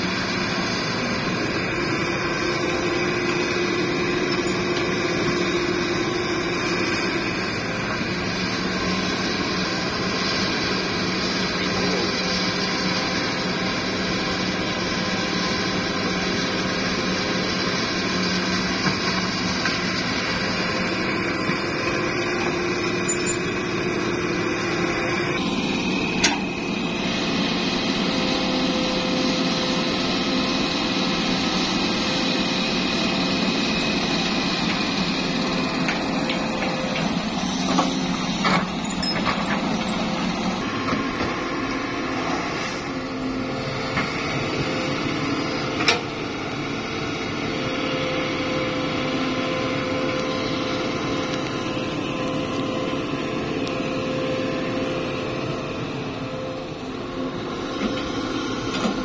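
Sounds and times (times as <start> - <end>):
excavator diesel engine running: 0.0 - 59.0.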